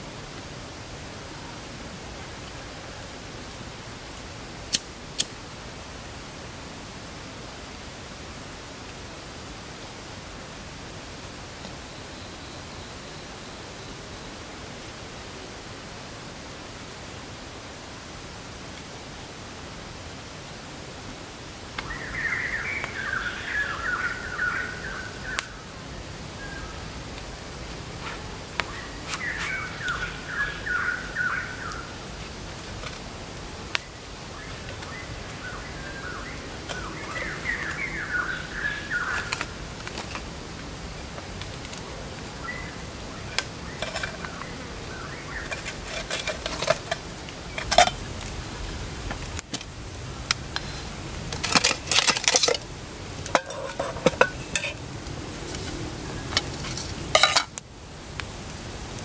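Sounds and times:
birds chirping: 21.7 - 49.0
metal cookware clinking: 43.3 - 44.4, 45.4 - 48.0, 51.3 - 52.6, 53.2 - 54.8, 56.3 - 57.6.

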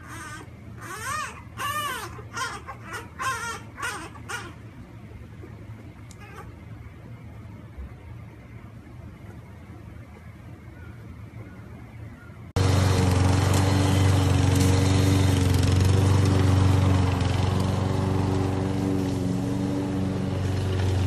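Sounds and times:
lawn mower engine mowing: 12.6 - 21.0.

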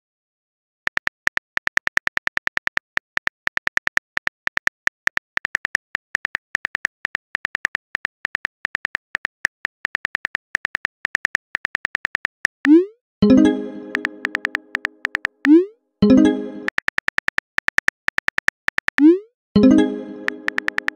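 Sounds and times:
phone keyboard key clicks: 0.9 - 12.5, 13.9 - 15.4, 16.7 - 19.0, 20.3 - 20.9.

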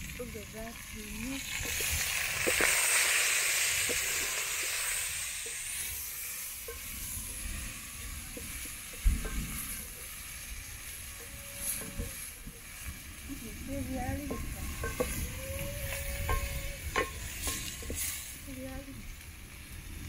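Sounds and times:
onions sizzling in a pot: 0.0 - 20.0
wooden stick knocking on pot: 14.0 - 18.0.

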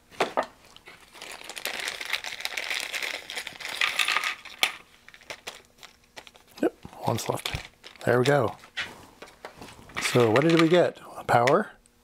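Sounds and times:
plastic bag crinkling: 0.6 - 10.9
small parts clicking into tray: 10.0 - 10.8.

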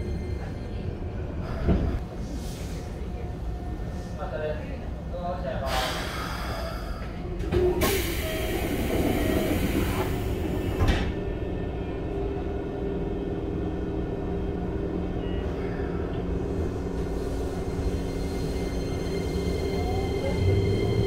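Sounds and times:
train car steady hum: 0.0 - 21.0
train doors sliding shut: 7.4 - 11.3.

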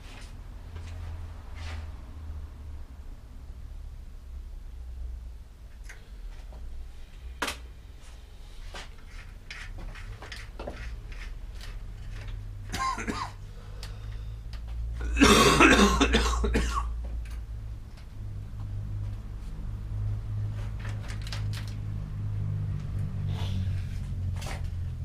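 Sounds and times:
man clearing throat: 12.7 - 13.4, 15.0 - 16.9
man coughing: 12.7 - 13.4, 15.0 - 16.9.

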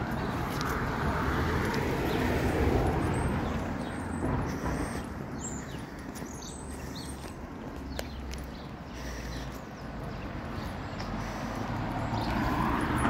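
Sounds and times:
vehicle passing: 0.0 - 13.0
small birds chirping: 3.1 - 12.8.

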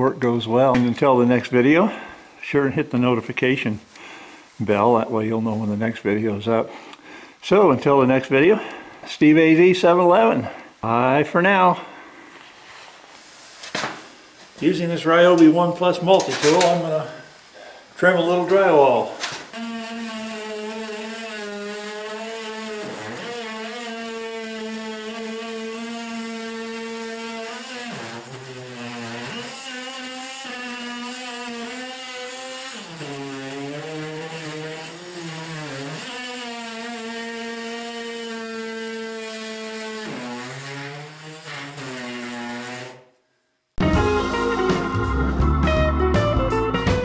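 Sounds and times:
oscillating multi-tool buzzing: 19.5 - 43.0.

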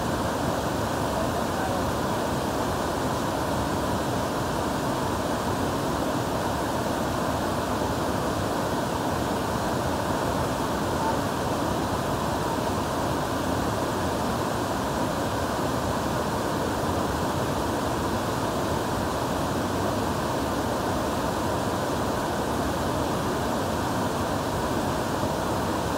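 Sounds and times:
waterfall rushing: 0.0 - 25.9.

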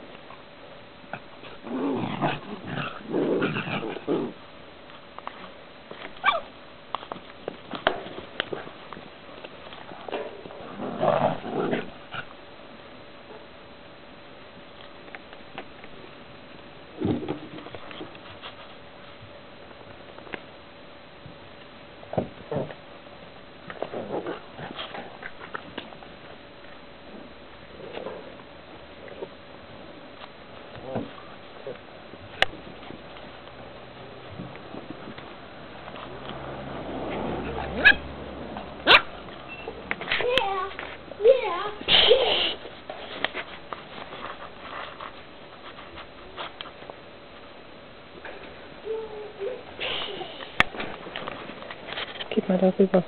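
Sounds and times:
dogs growling: 1.1 - 4.5, 9.8 - 12.4, 23.7 - 25.8, 34.3 - 39.4
dog yelping: 6.2 - 6.5, 37.5 - 38.1, 38.8 - 39.7.

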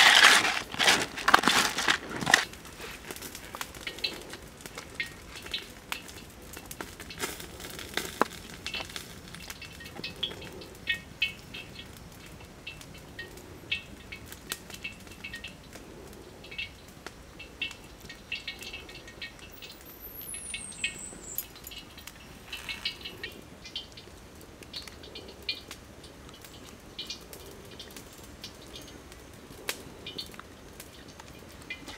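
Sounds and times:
wet rustling in a basket: 0.0 - 5.6, 20.2 - 23.4.

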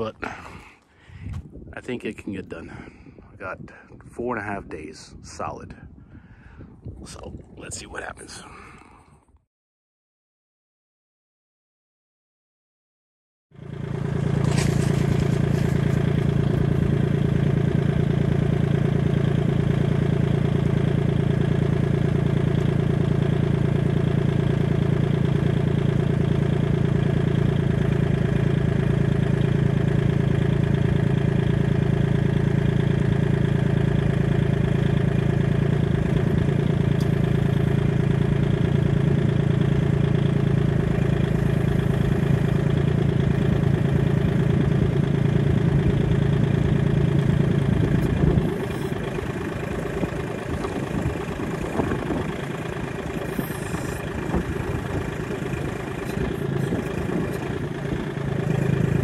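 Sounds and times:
tractor engine running: 13.6 - 59.0.

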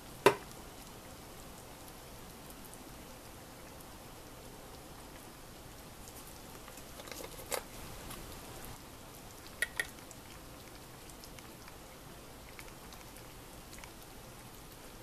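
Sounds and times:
pot simmering and bubbling: 0.0 - 15.0
liquid pouring: 9.3 - 14.4.

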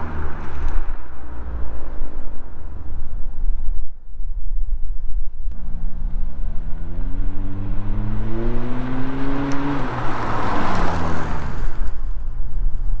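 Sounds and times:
car accelerating and passing: 0.0 - 3.1, 5.5 - 12.6.

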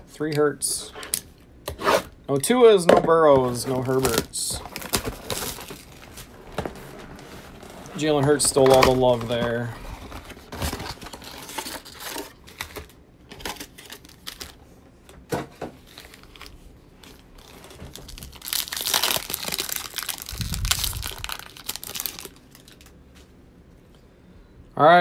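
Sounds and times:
foil packs rustling and clicking: 3.5 - 14.6, 15.8 - 22.9
foil pack tearing: 15.9 - 22.9.

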